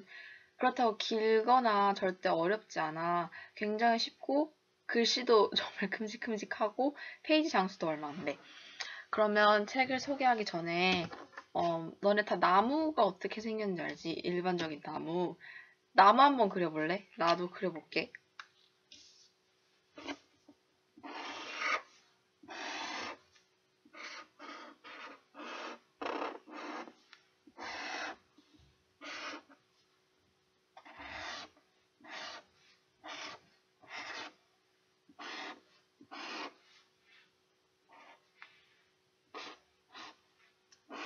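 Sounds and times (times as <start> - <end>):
faint steady hum: 0.0 - 41.0
pen scratching on paper: 20.0 - 20.2, 21.0 - 21.9, 23.9 - 27.0, 27.6 - 28.2, 29.0 - 29.6, 30.8 - 34.4, 35.2 - 36.6, 37.9 - 38.3, 39.3 - 40.2.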